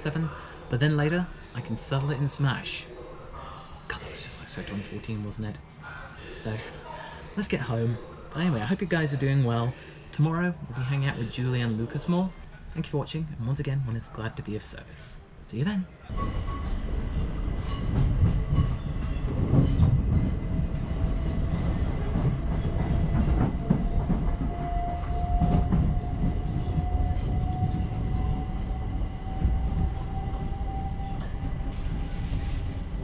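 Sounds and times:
train rumbling on track: 16.1 - 33.0.

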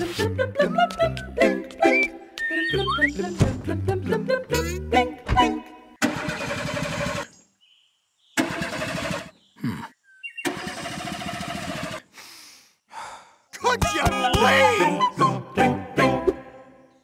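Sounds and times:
car engine starter cranking: 6.0 - 7.3, 8.4 - 9.3, 10.4 - 12.0
falling engine sputter: 6.0 - 7.3, 8.4 - 9.4, 10.4 - 12.1.

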